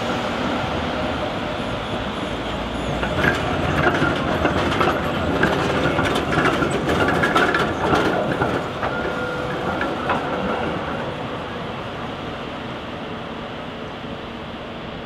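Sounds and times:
tram wheels rumbling on rails: 0.0 - 15.0
sharp clacks of rail joints: 2.8 - 11.2.

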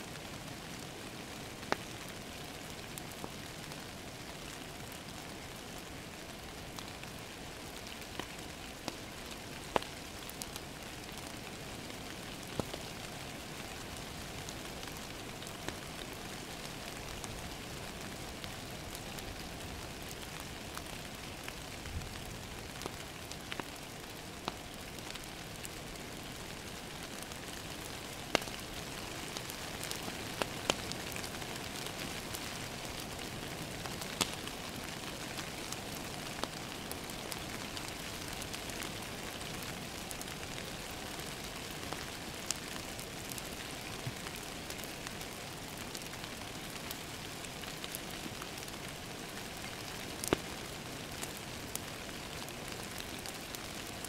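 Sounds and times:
wood fire crackling and popping: 0.2 - 54.0.

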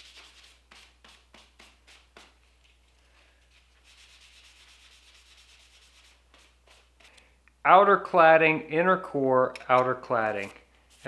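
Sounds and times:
rag rubbing on steel: 3.8 - 7.1.

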